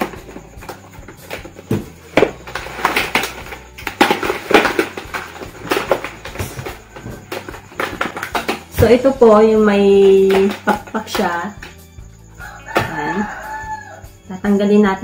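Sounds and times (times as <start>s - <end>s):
clicks and knocks on plastic jug: 0.0s - 8.9s.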